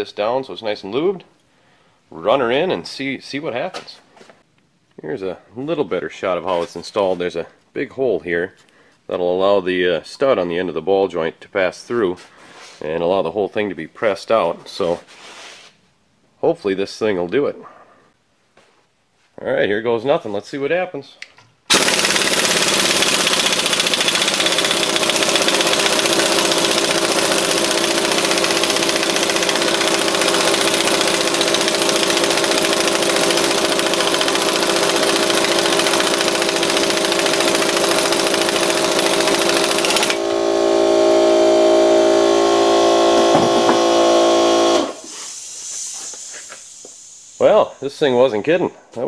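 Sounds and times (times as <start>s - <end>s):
air impact wrench hammering: 21.7s - 47.5s
impact wrench whine: 21.7s - 47.7s.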